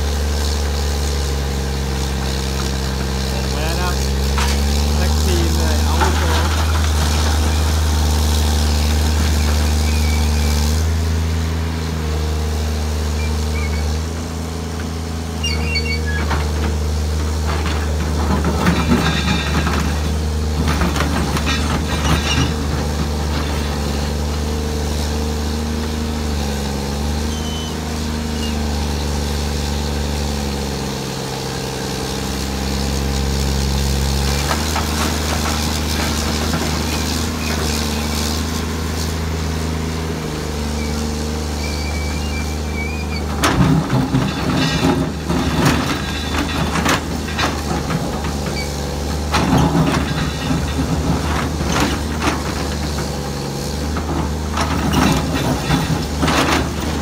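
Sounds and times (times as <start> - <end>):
excavator diesel engine running: 0.0 - 57.0
rock and soil clattering: 0.0 - 57.0.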